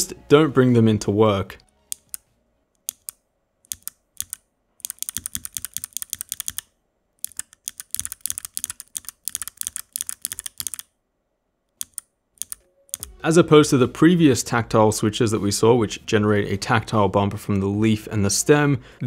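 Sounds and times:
clicky mechanical keyboard typing: 1.9s - 2.2s, 2.8s - 10.9s, 11.8s - 13.2s.

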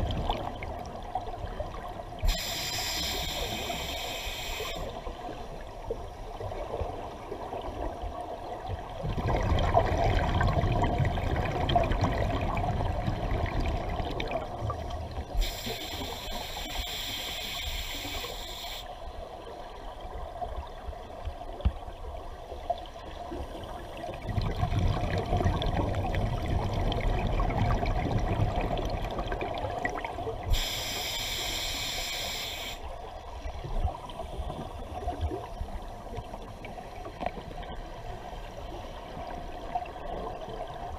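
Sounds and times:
hissing regulator inhalation: 2.3s - 4.9s, 30.5s - 32.8s
gurgling exhaled bubbles: 9.0s - 14.8s, 24.0s - 30.5s.

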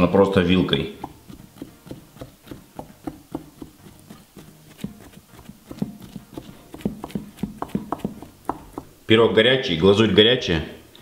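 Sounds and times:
skewer tapping into cake: 0.8s - 9.0s.

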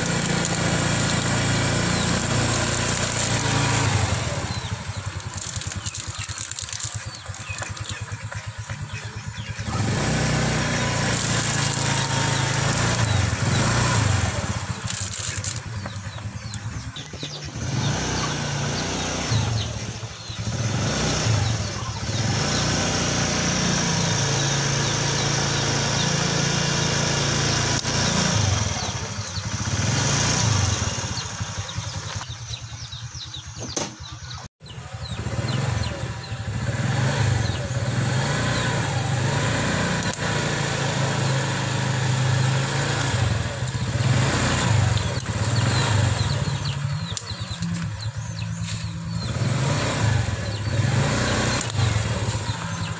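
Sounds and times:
motorcycle engine revving: 0.0s - 52.9s.

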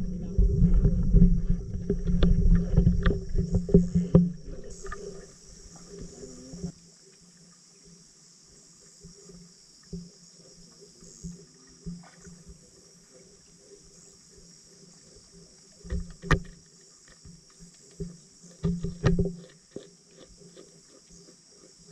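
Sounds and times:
underwater hiss and hum: 0.0s - 21.9s
soft underwater knocks: 17.2s - 19.9s.

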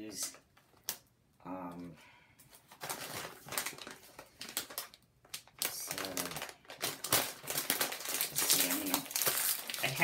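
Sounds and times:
chip bag crinkling: 2.8s - 10.0s.

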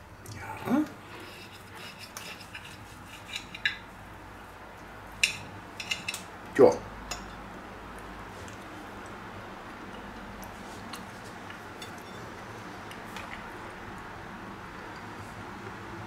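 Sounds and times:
cutlery scraping a plate: 1.1s - 3.9s, 5.2s - 6.3s
cutlery clinking on a plate: 5.2s - 6.3s.

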